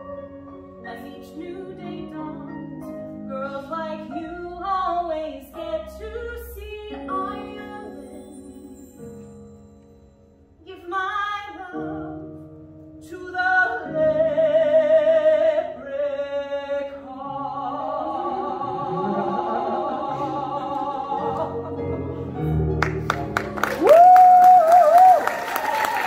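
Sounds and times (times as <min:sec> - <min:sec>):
woman singing: 0:00.9 - 0:08.8, 0:10.6 - 0:12.2, 0:13.0 - 0:21.7
instrumental accompaniment: 0:20.8 - 0:23.8
audience applause: 0:22.8 - 0:26.0.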